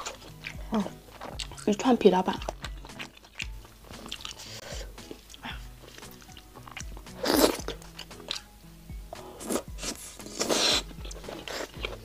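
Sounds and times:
chewing with mouth noises: 0.0 - 8.5, 9.1 - 12.0
loud bite: 2.5 - 8.5.

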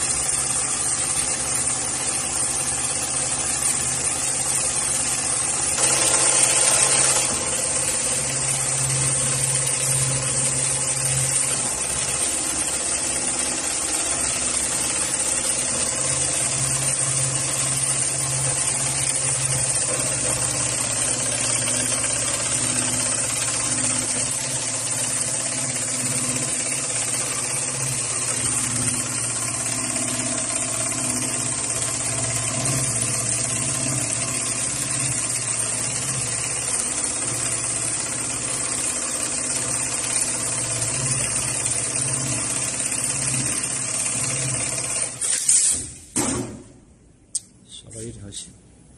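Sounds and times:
sewing machine running: 0.0 - 45.7
brief loud hiss: 45.2 - 46.1.

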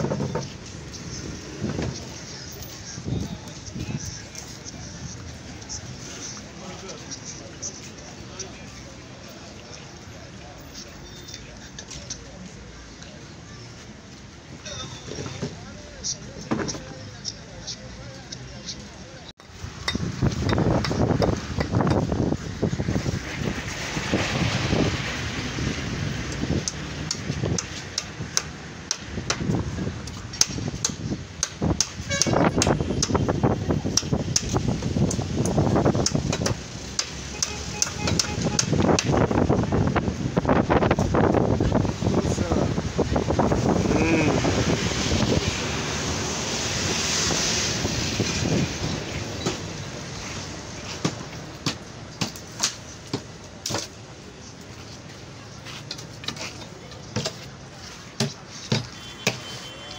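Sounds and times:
wooden boards knocking: 0.0 - 0.5
low street rumble: 0.0 - 59.9
wind on microphone: 19.6 - 28.4, 29.2 - 36.6, 38.0 - 50.8.

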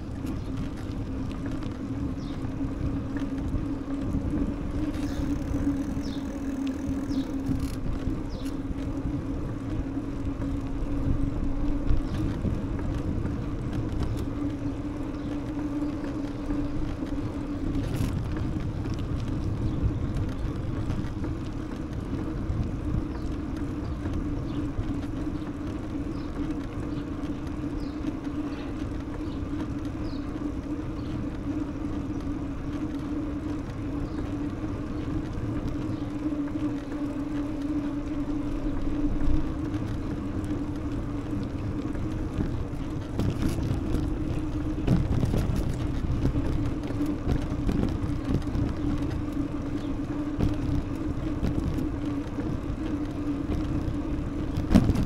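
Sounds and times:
bicycle rolling rumble: 0.0 - 55.0
steady hum: 0.0 - 55.0.

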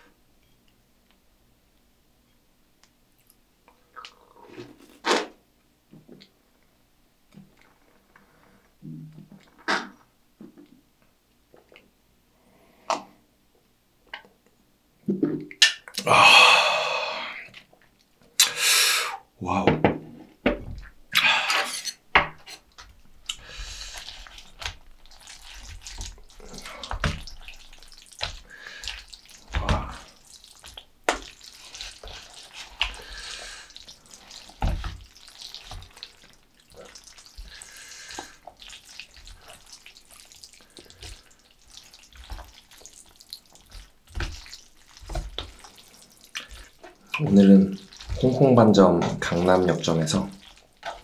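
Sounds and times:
slurping and chewing noodles: 22.6 - 51.0.

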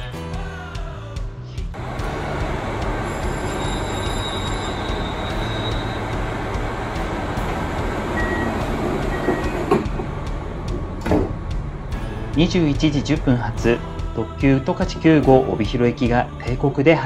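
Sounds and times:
diesel railcar idling: 1.8 - 14.2
sliding door knock: 8.5 - 11.6.

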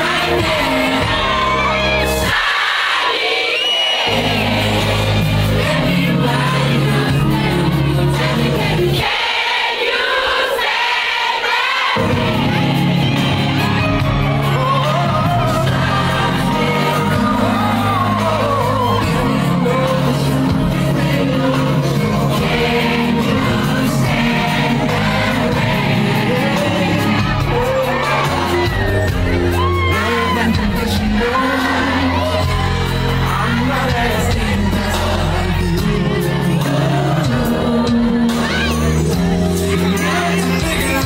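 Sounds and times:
loud dance music: 0.0 - 3.1, 11.6 - 41.0
crowd singing along: 0.0 - 41.0.

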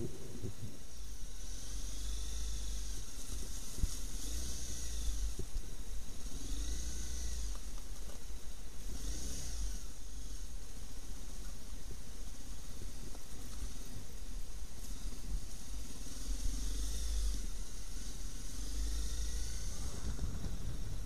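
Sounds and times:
motorcycle running at low speed: 0.0 - 21.0
wind rumble on microphone: 0.0 - 21.0
tyres hissing through slush: 14.8 - 20.4.

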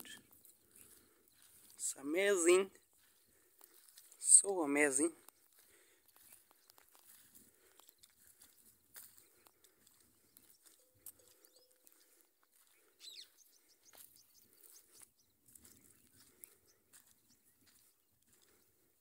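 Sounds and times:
falling bird chirp: 10.4 - 17.8.

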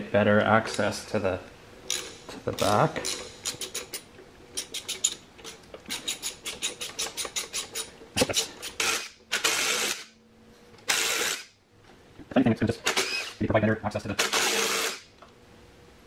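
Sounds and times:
impact driver running: 10.9 - 11.5, 14.2 - 15.0.

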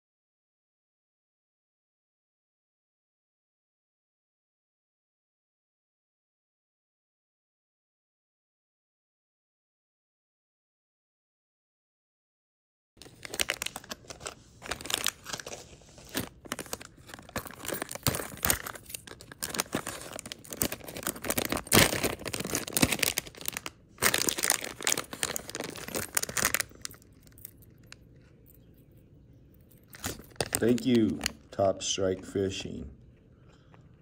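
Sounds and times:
plastic packets crinkling: 13.0 - 28.7, 29.6 - 31.6.

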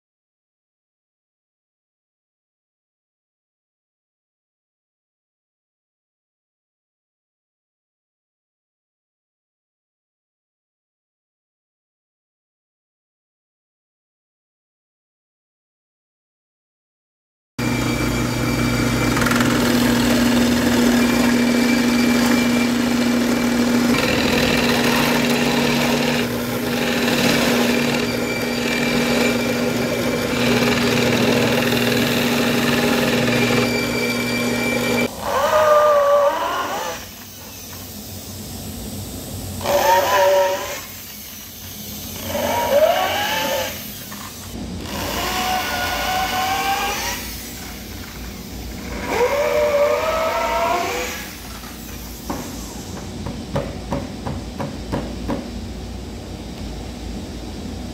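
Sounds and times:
drill motor humming: 17.6 - 37.9, 39.6 - 52.5
electric drill whining in bursts: 17.6 - 37.9, 39.6 - 52.1.

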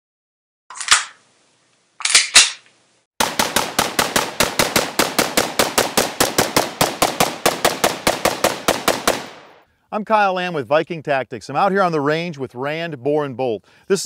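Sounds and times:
rifle firing rapid shots: 3.2 - 9.6.

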